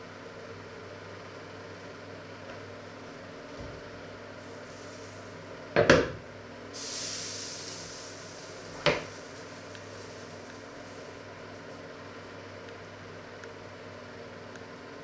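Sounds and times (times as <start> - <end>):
steady low hum: 0.0 - 15.0
hiss: 4.4 - 5.6, 6.7 - 11.8.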